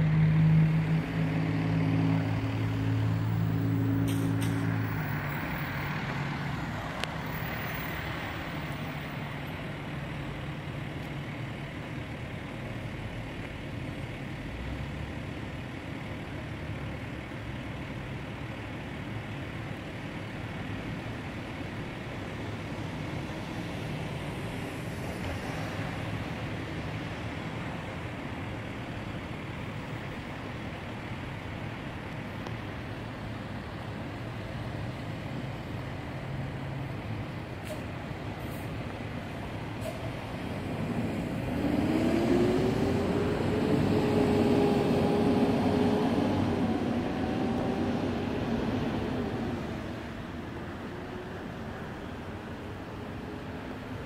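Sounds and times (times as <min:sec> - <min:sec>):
passing vehicle engine: 0:00.0 - 0:10.7, 0:32.8 - 0:54.0
steady hum of traffic: 0:00.0 - 0:54.0.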